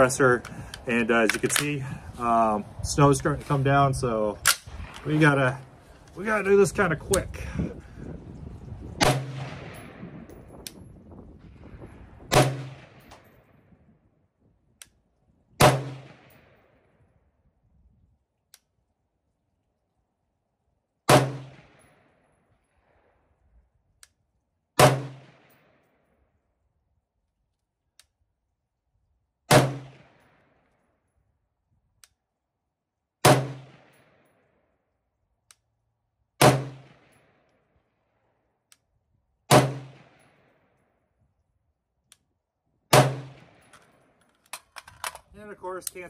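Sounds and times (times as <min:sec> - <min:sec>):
rifle shots with echo: 0:09.0 - 0:10.3, 0:12.3 - 0:13.3, 0:15.6 - 0:16.9, 0:21.1 - 0:22.2, 0:24.8 - 0:25.9, 0:29.5 - 0:30.6, 0:33.2 - 0:34.3, 0:36.4 - 0:37.4, 0:39.5 - 0:40.6, 0:42.9 - 0:44.0.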